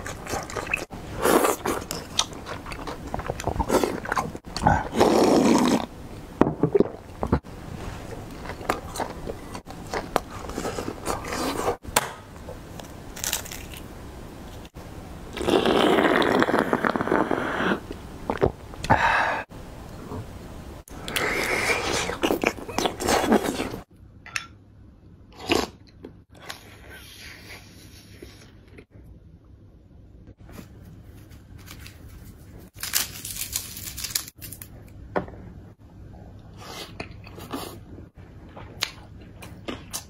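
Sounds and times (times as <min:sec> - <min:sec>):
chewing and crunching food: 0:00.0 - 0:05.9, 0:38.4 - 0:40.0.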